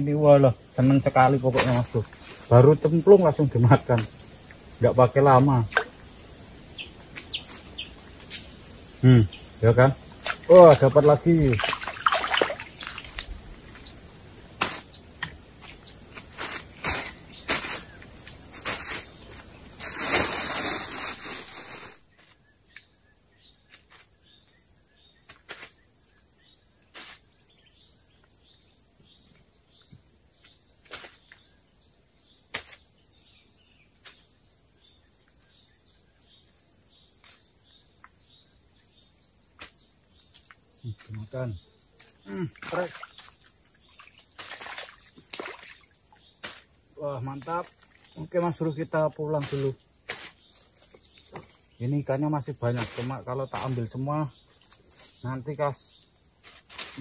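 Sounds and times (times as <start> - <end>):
insects shrilling: 0.0 - 28.7, 30.4 - 57.0
loud rustle: 18.5 - 22.0.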